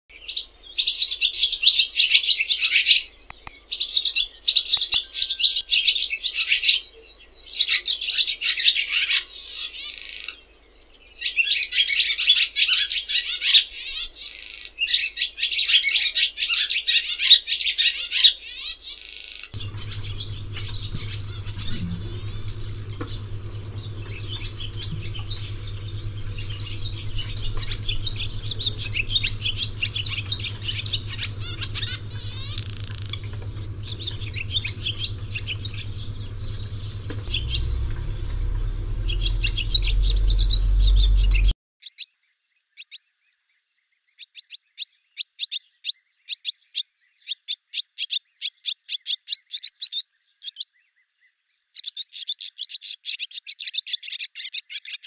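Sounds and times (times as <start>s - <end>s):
swallows twittering: 16.5s - 41.5s
steady low hum: 19.6s - 41.6s.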